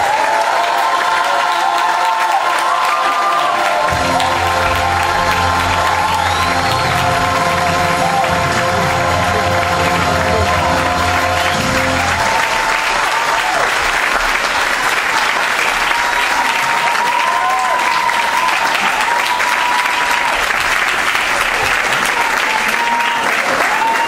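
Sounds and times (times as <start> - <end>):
audience applauding: 0.0 - 24.0
backing music: 3.8 - 13.7
high held call: 3.9 - 13.4.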